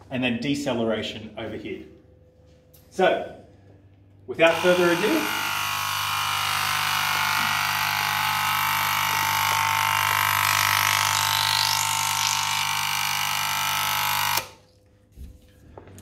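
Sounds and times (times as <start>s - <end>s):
ticker timer buzzing: 4.4s - 11.2s, 12.4s - 14.6s.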